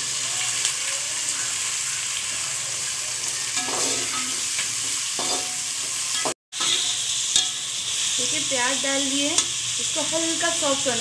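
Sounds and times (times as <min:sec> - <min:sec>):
onions sizzling in oil: 0:00.0 - 0:11.0
metal spatula clinking on pot: 0:03.6 - 0:04.6, 0:05.2 - 0:07.7.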